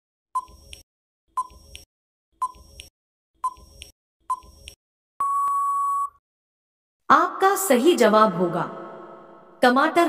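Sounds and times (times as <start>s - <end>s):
long steady beep: 5.2s - 6.2s
short beeps: 5.2s - 6.2s.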